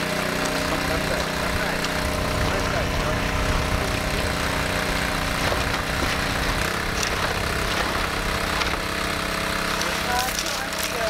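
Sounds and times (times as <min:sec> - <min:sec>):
water pump engine running: 0:00.0 - 0:11.0.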